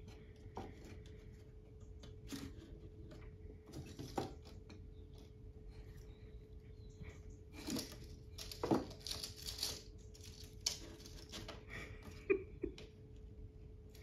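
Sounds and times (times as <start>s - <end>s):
dog rummaging in dry sticks: 7.6s - 11.5s.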